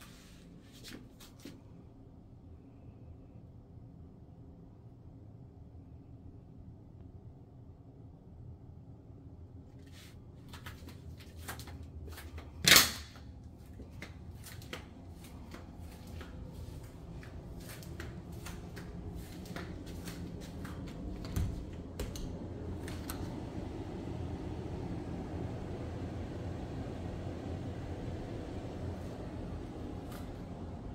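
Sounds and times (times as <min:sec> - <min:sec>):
footsteps on tile floor: 0:10.5 - 0:21.9.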